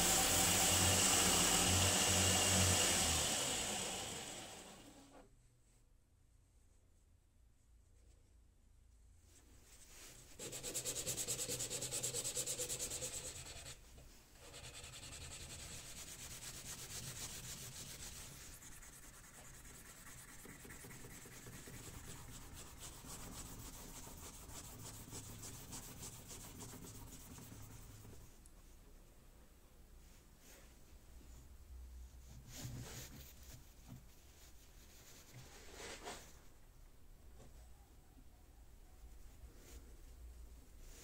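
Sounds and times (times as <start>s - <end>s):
sandpaper rubbing wood: 0.0s - 4.8s, 10.4s - 13.8s, 14.4s - 28.2s.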